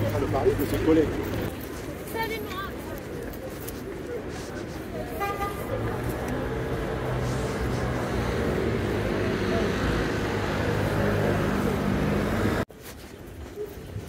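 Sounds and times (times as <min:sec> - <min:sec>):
traffic noise: 0:00.0 - 0:14.0
vehicle engine hum: 0:05.3 - 0:12.7.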